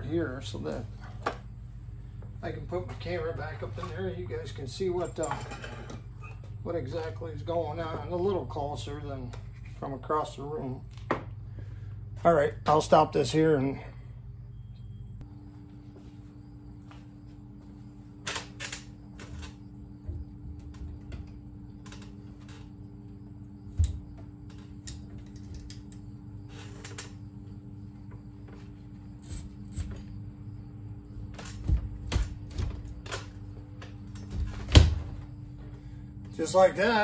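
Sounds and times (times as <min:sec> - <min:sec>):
low hum: 0:10.4 - 0:18.2.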